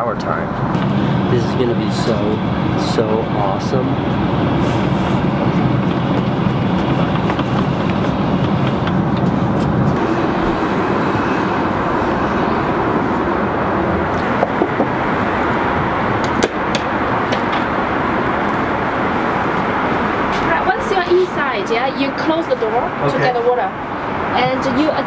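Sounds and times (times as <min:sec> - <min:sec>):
airliner cabin engine rush: 0:00.0 - 0:25.0.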